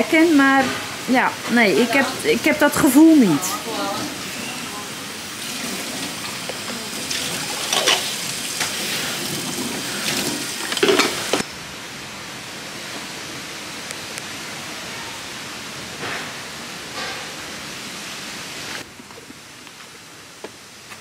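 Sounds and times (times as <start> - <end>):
dishes clinking: 10.7 - 11.4.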